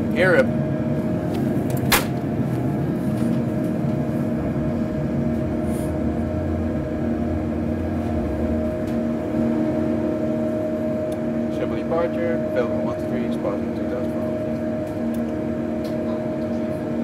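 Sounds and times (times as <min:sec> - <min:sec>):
jet engine rumble: 0:00.0 - 0:17.0.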